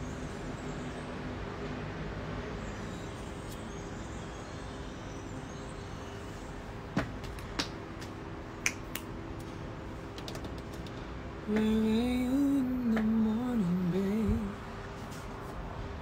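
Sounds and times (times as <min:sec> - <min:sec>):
low background hum: 0:00.0 - 0:16.0
man humming a slow tune: 0:11.5 - 0:14.7.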